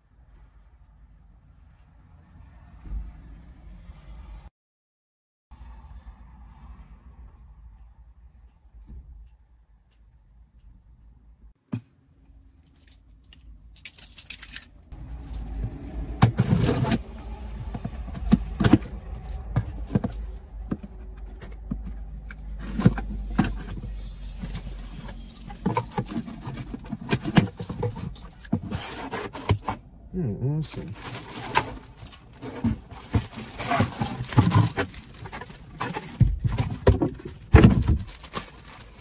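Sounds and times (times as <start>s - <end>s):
cardboard parcel being cut open: 16.2s - 17.2s, 30.8s - 39.0s.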